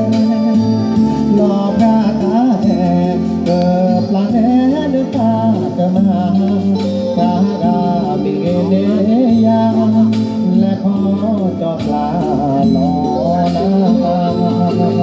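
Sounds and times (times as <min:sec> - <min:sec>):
amplified backing music: 0:00.0 - 0:15.0
man singing into a microphone: 0:00.0 - 0:15.0.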